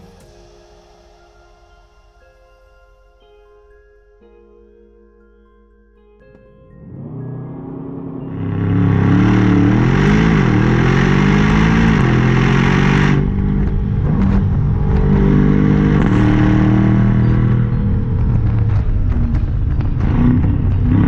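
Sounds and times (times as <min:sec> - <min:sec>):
car engine revving: 0:06.8 - 0:21.0.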